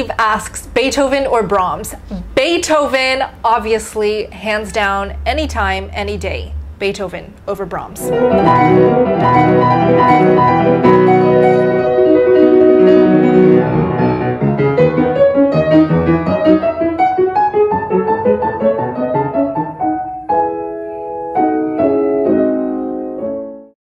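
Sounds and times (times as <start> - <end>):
grand piano classical passage: 7.9 - 23.7.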